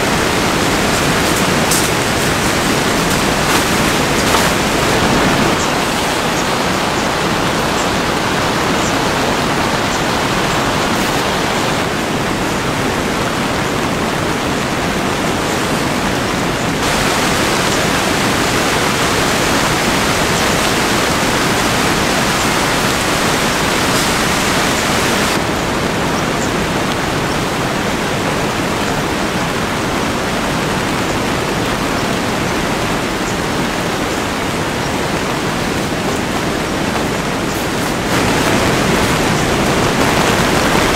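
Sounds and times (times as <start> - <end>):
heavy rain on tent: 0.0 - 40.9.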